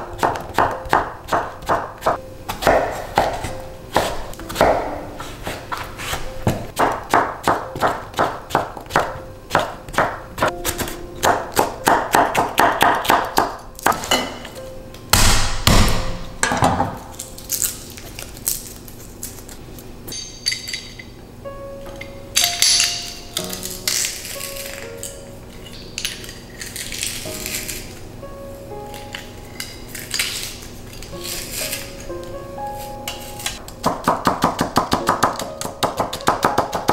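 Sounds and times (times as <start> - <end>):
soft background music: 0.0 - 18.7, 21.0 - 36.9
knife chopping on wooden board: 0.2 - 4.9, 6.4 - 14.1, 33.8 - 36.9.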